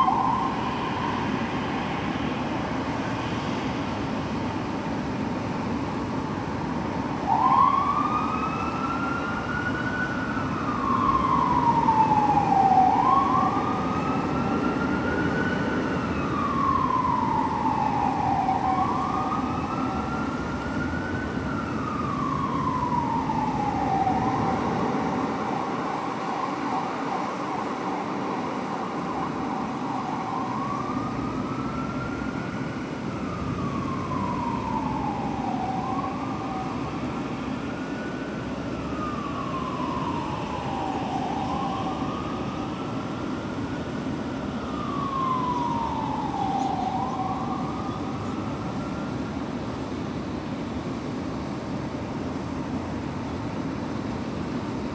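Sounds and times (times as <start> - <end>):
fire truck siren wailing: 0.0 - 54.9.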